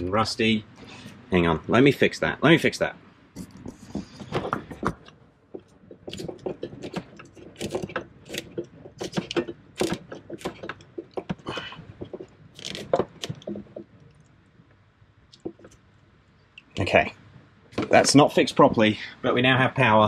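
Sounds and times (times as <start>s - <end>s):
clicks and scrapes of wiring: 3.4s - 14.4s.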